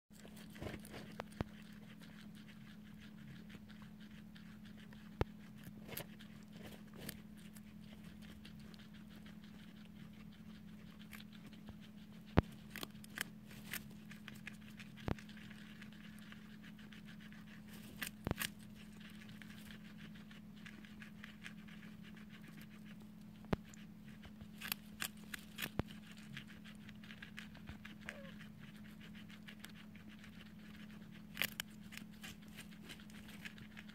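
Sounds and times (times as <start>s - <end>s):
guinea pigs chewing vegetables: 0.1s - 33.9s.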